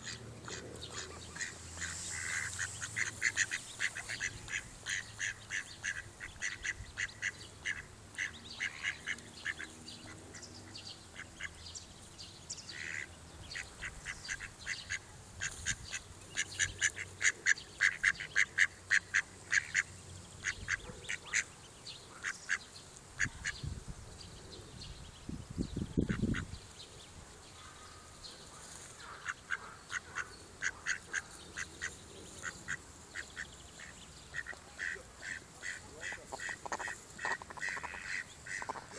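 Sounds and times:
mallards calling: 0:00.0 - 0:10.5, 0:12.7 - 0:21.5, 0:29.0 - 0:38.9.

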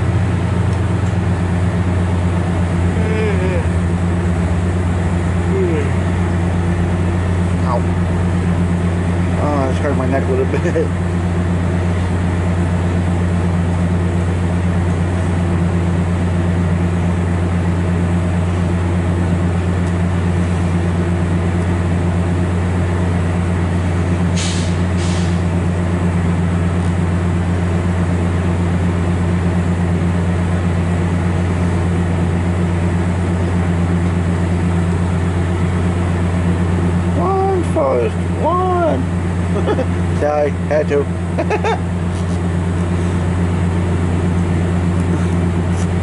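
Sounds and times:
train mechanical hum: 0:00.0 - 0:46.0
short sharp air hisses: 0:24.4 - 0:25.4.

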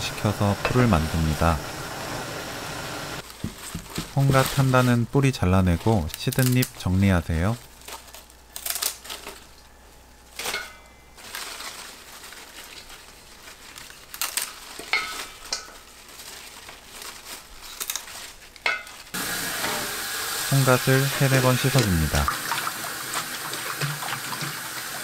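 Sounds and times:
tap running: 0:00.0 - 0:04.1, 0:21.4 - 0:25.0
leaves rustling: 0:00.0 - 0:06.7, 0:10.2 - 0:23.4.

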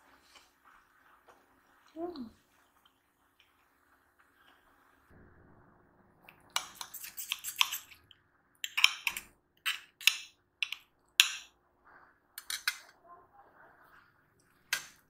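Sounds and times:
dishes and utensils clattering: 0:12.4 - 0:13.0.

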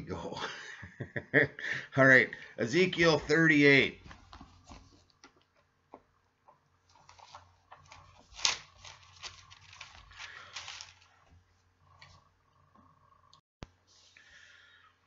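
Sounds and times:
pages rustling and flicking: 0:06.9 - 0:11.4.

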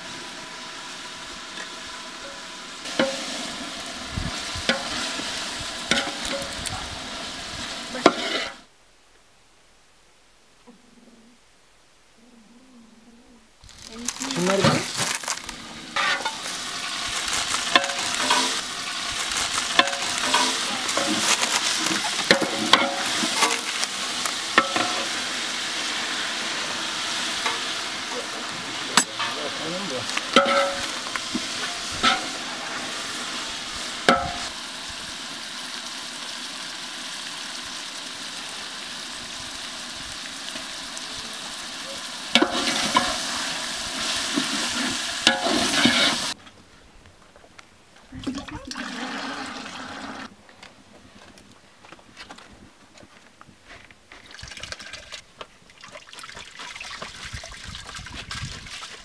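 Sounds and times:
hot oil sizzling: 0:00.0 - 0:08.7, 0:13.6 - 0:46.4, 0:48.5 - 0:50.3, 0:54.2 - 0:59.0
metal ladle scraping pot: 0:16.0 - 0:16.6, 0:30.3 - 0:32.5, 0:44.6 - 0:46.4.

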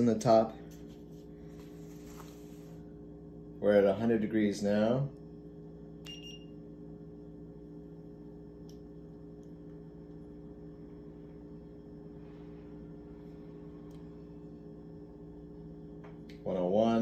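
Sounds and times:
low electrical hum: 0:00.0 - 0:17.0
thermometer beep: 0:06.0 - 0:06.5.

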